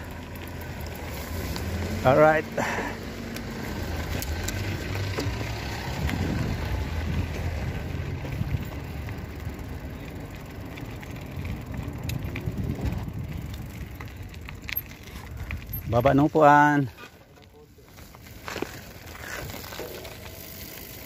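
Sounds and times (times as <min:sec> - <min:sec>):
bicycle tyres rumbling on road: 0:00.0 - 0:21.0
bike rattling clicks: 0:03.2 - 0:16.4, 0:17.3 - 0:21.0
wind on microphone: 0:05.9 - 0:08.7.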